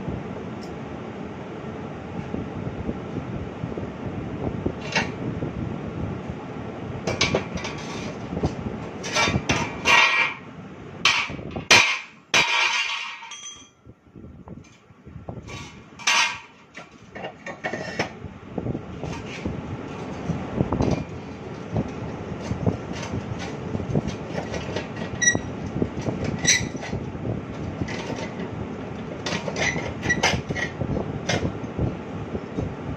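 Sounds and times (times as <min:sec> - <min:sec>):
steady background noise: 0:00.0 - 0:32.9
metal clanks and knocks: 0:07.1 - 0:08.3, 0:08.9 - 0:10.4, 0:11.0 - 0:13.8, 0:15.4 - 0:18.2, 0:27.6 - 0:31.5.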